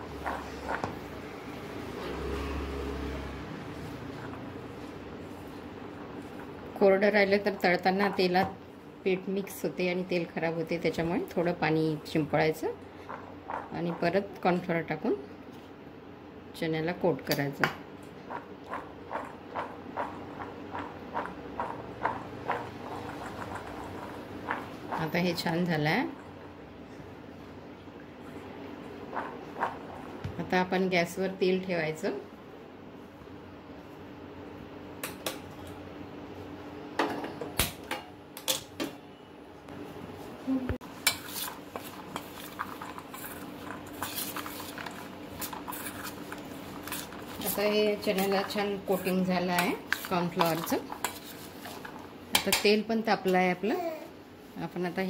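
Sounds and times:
chickpeas tossed in a steel bowl: 0:19.2 - 0:25.9, 0:41.1 - 0:52.6.

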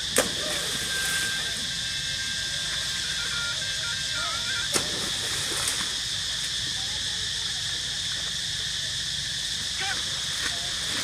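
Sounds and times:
insect chorus drone: 0:00.0 - 0:11.0
thin whistling tone: 0:00.4 - 0:04.7.

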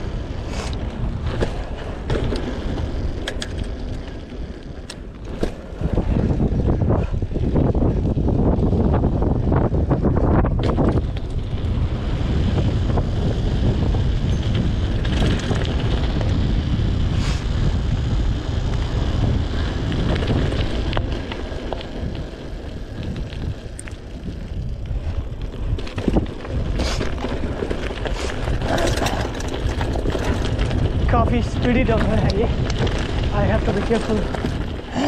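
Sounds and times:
bike clicks and rattles: 0:00.0 - 0:35.0
wind buffeting microphone: 0:00.0 - 0:35.0
tyres crunching over gravel: 0:18.0 - 0:35.0.

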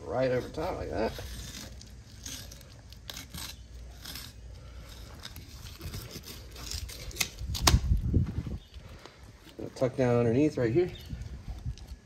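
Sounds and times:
knife scraping and cutting fish: 0:00.2 - 0:07.7.

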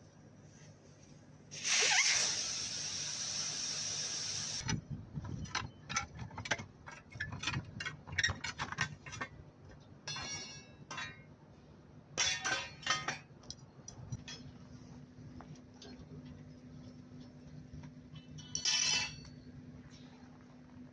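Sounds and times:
ringing metal clanks: 0:10.1 - 0:11.2, 0:18.2 - 0:19.3.

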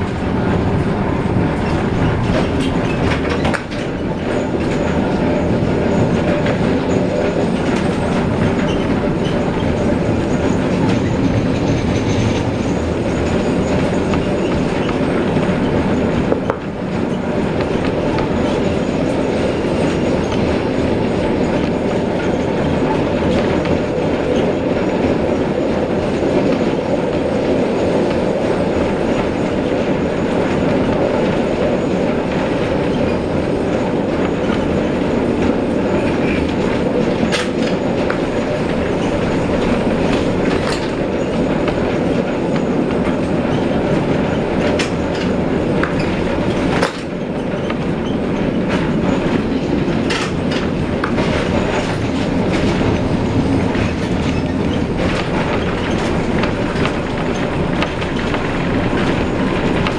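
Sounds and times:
streetcar rumbling on rails: 0:00.0 - 0:59.9
sharp clicks of rails: 0:21.5 - 0:59.9.

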